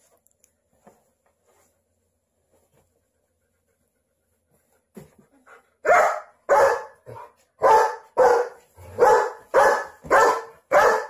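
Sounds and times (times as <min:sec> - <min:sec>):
dog barking: 0:05.8 - 0:11.0.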